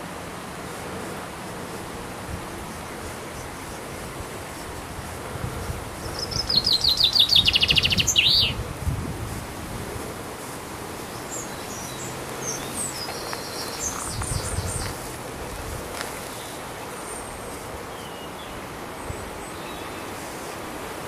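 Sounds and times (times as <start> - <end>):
faint high bird chirps: 6.0 - 8.6
songbird fast trill: 6.0 - 8.6, 11.0 - 15.0.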